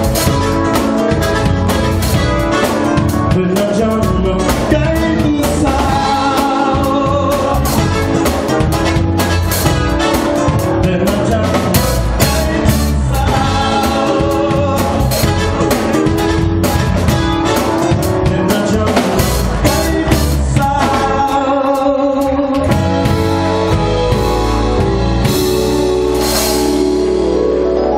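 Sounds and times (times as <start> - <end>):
drum beat: 0.0 - 21.4
guitar: 0.0 - 27.9
keyboard: 0.0 - 27.9
man singing into a microphone: 3.0 - 8.3, 10.5 - 16.0, 18.1 - 23.2.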